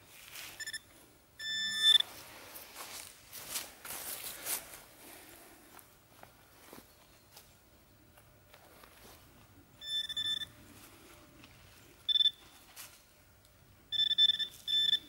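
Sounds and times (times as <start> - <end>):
metal detector buzzing tone: 0.6 - 0.8, 1.4 - 2.1, 9.8 - 10.6, 12.1 - 12.6, 13.9 - 15.0.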